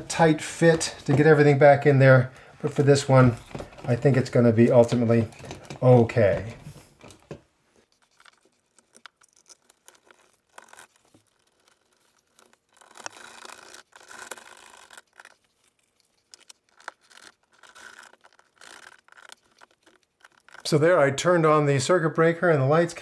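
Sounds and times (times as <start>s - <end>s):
screwdriver turning screws: 8.0s - 20.7s.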